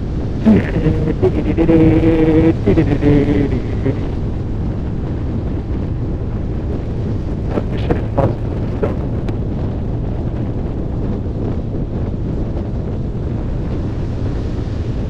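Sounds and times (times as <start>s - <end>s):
wind rushing over microphone: 0.0s - 15.0s.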